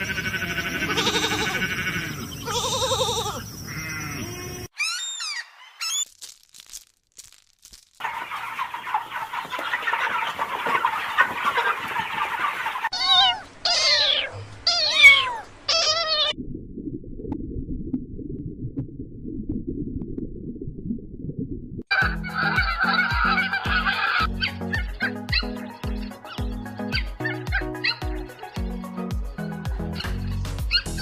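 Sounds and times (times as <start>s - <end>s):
bleat-like animal calls: 0.0s - 4.9s
loud rising-and-falling calls: 0.6s - 6.1s, 21.9s - 24.3s.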